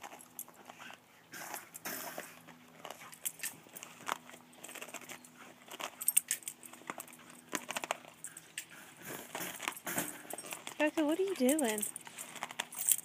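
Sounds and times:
dog chewing rubber ball: 0:00.0 - 0:11.4.

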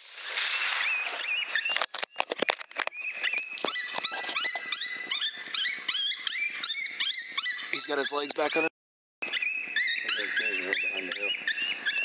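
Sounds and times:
coyote yelping and whining: 0:03.2 - 0:07.8, 0:09.2 - 0:12.0.

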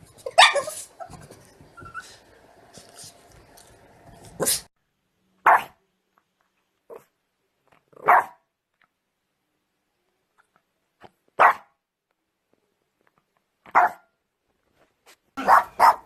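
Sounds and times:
dog barking: 0:00.3 - 0:00.8, 0:05.4 - 0:05.8, 0:08.0 - 0:08.5, 0:11.4 - 0:11.8, 0:13.7 - 0:14.1, 0:15.4 - 0:16.0.

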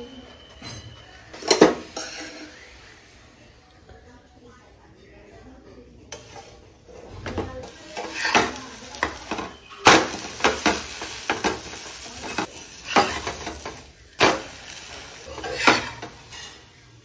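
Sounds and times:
low sizzle from pan: 0:06.1 - 0:17.0
metal spatula scraping a pan: 0:07.6 - 0:17.0.

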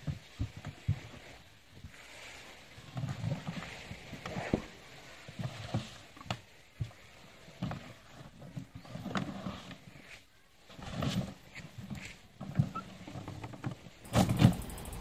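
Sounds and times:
elephant butting rubber tyre: 0:10.7 - 0:15.0.

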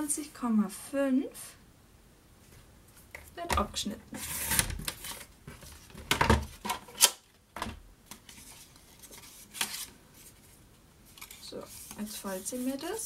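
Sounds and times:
paper rustling: 0:04.1 - 0:07.1, 0:08.1 - 0:13.0.

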